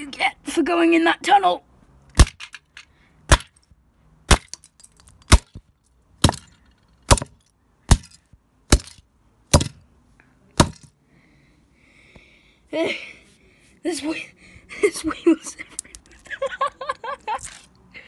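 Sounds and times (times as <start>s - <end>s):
concrete block hitting plastic toy: 2.1s - 3.6s, 4.3s - 9.8s, 10.6s - 10.9s.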